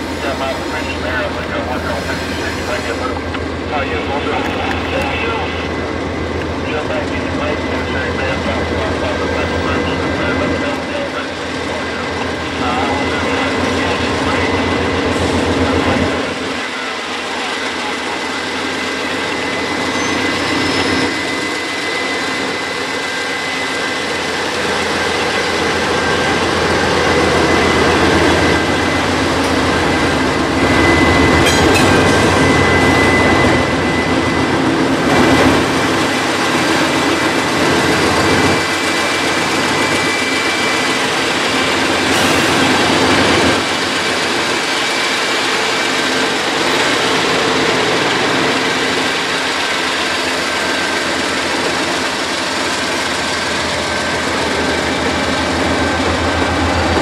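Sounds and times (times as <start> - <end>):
diesel locomotive engines running: 0.0 - 57.0
steady high whine: 0.1 - 57.0.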